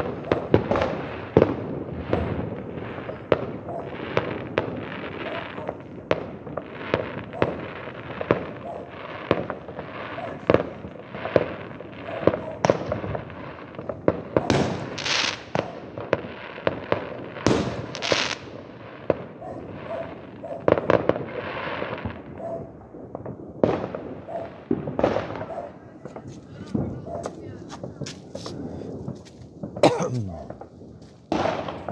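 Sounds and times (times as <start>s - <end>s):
crackling firework bursts: 0.0s - 22.4s, 30.4s - 31.9s
distant fireworks bangs and pops: 0.0s - 31.9s.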